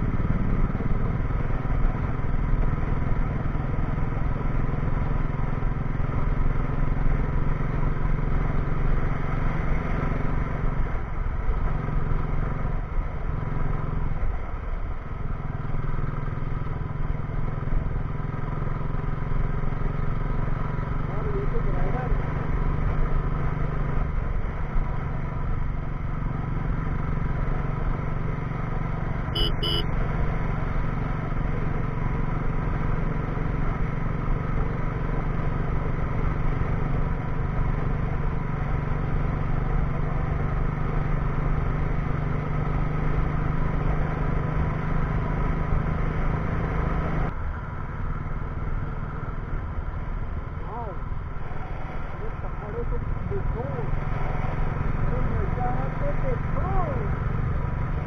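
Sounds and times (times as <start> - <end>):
motorcycle engine cruising: 0.0 - 58.0
road noise: 0.0 - 58.0
short beep: 29.4 - 29.9.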